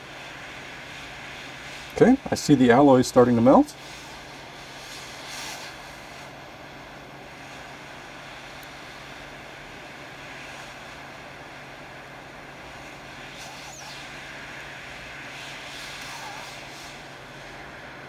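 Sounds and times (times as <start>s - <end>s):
hot air blower hissing: 0.0s - 18.0s
low steady hum: 0.0s - 18.0s.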